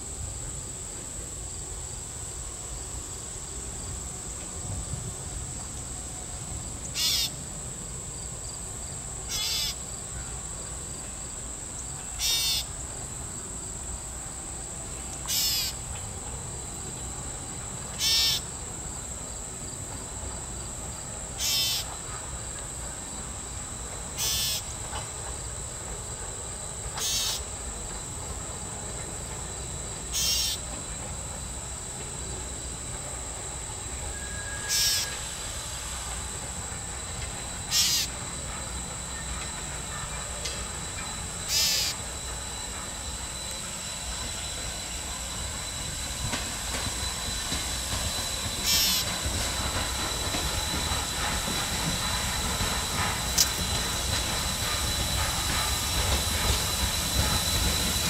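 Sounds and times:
high insect drone: 0.0s - 58.0s
steam locomotive rumble: 0.0s - 58.0s
short high insect chirps: 7.0s - 7.4s, 9.3s - 9.8s, 12.2s - 12.7s, 15.3s - 15.8s, 17.9s - 18.6s, 21.4s - 22.0s, 24.2s - 24.8s, 27.0s - 27.6s, 30.1s - 30.7s, 34.1s - 36.4s, 37.1s - 49.2s.

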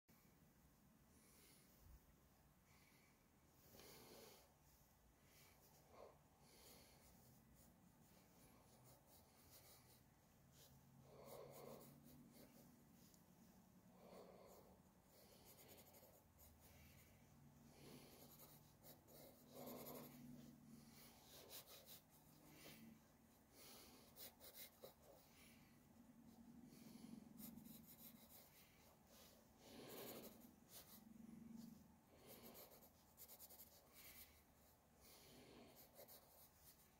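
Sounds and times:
pen scratching on paper: 8.4s - 10.0s, 10.6s - 12.7s, 14.2s - 16.7s, 17.8s - 22.8s, 23.7s - 25.2s, 27.4s - 29.0s, 29.7s - 31.0s, 32.2s - 34.4s, 35.7s - 36.9s.

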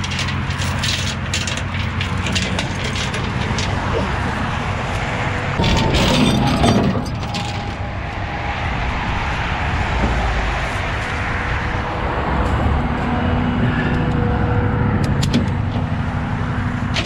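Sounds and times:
metal chains clinking: 0.0s - 4.0s, 5.6s - 7.8s
truck engine idling: 0.0s - 17.0s.

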